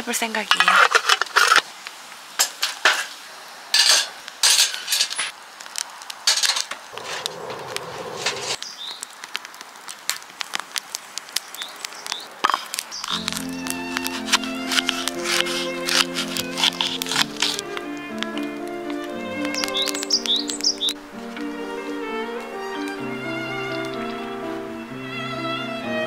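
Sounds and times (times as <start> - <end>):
firewood being pushed in: 6.3 - 8.6, 11.7 - 23.0
music: 13.2 - 26.0.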